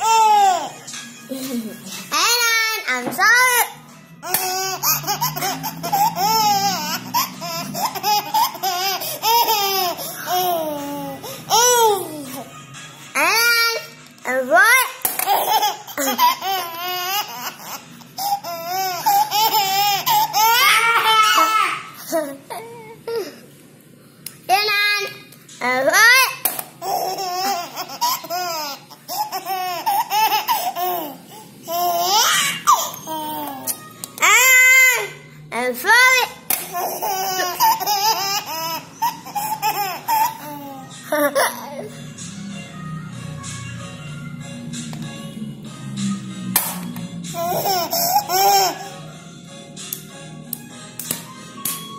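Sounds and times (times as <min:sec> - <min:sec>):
toddler laughing: 0:00.0 - 0:02.9, 0:03.5 - 0:12.5, 0:14.7 - 0:23.4, 0:26.0 - 0:35.2, 0:36.7 - 0:42.0, 0:47.3 - 0:49.0.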